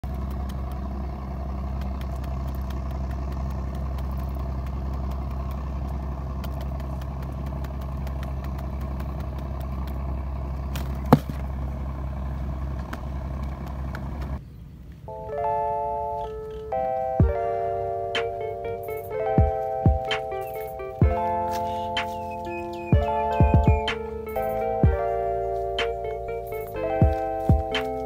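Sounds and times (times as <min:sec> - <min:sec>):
engine humming: 0:00.0 - 0:28.0
faint ticks: 0:01.6 - 0:10.1.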